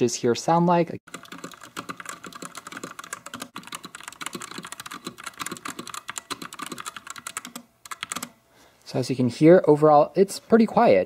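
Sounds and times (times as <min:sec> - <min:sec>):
fast typing on mechanical keyboard: 0:01.1 - 0:08.4.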